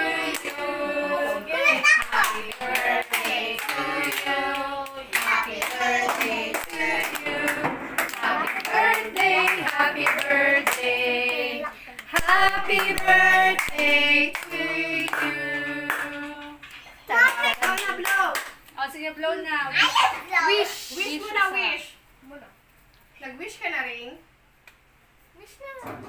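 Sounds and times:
group singing: 0.0s - 16.6s.

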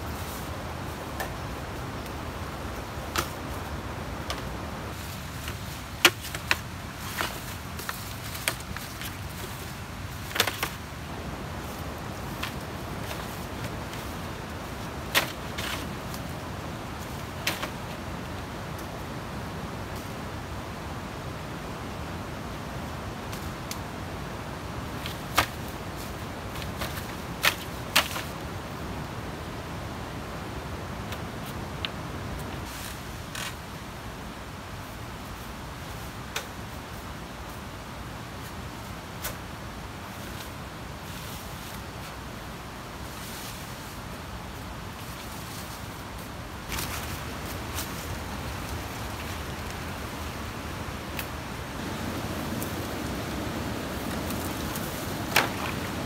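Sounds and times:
low background noise: 0.0s - 56.0s
steady background hiss: 0.0s - 56.0s
bamboo poles clacking together: 3.1s - 3.4s, 5.4s - 9.6s, 10.2s - 10.8s, 15.0s - 16.3s, 17.1s - 18.0s, 25.0s - 28.4s, 54.0s - 56.0s.

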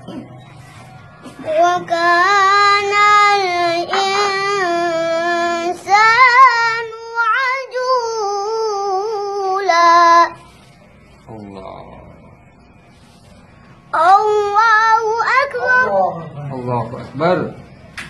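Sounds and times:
boy chanting melodic recitation: 1.3s - 10.5s, 13.9s - 16.4s.

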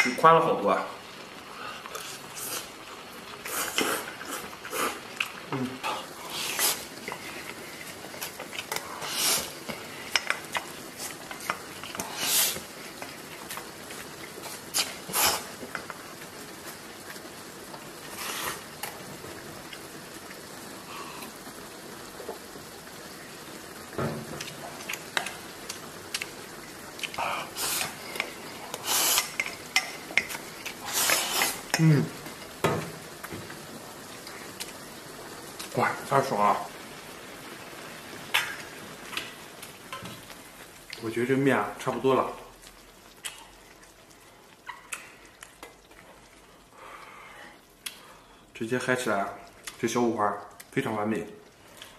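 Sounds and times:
simmering pot hiss: 0.0s - 51.9s
utensil scraping and clinking on pot: 27.8s - 31.8s.

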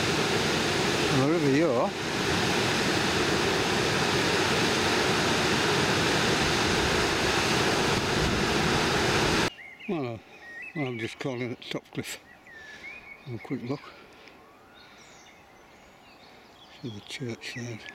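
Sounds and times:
water rushing over weir: 0.0s - 9.5s.

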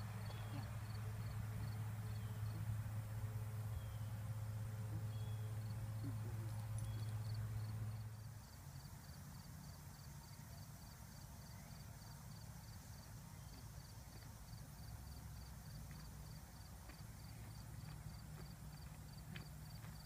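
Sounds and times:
low steady rumble: 0.0s - 20.0s
faint high insect chirp: 0.2s - 2.8s, 3.5s - 20.0s.

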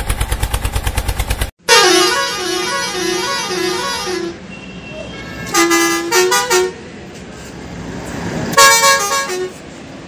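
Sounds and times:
musical vehicle horn tooting: 1.7s - 6.8s, 8.6s - 9.6s.

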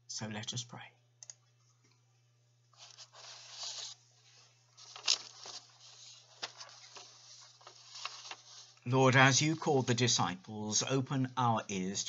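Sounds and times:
paper rustling and shuffling: 2.7s - 10.2s.

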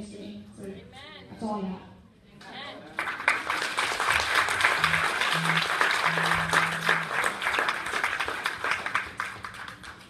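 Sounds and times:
crowd applauding: 3.0s - 10.0s
low held notes: 4.7s - 7.8s.

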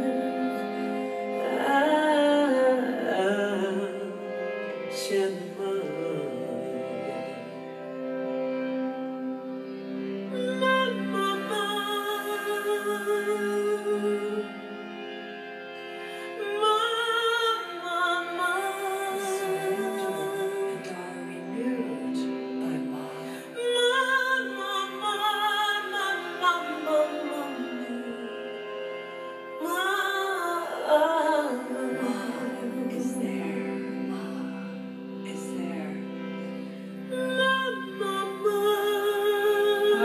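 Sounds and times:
woman singing a slow chant: 0.0s - 4.0s, 16.4s - 28.2s, 29.6s - 36.0s, 37.1s - 40.0s.

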